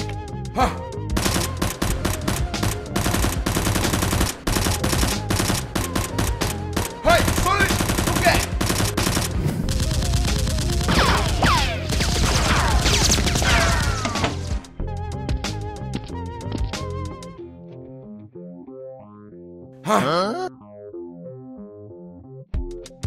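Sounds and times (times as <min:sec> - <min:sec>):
automatic gunfire bursts: 0:01.2 - 0:09.4.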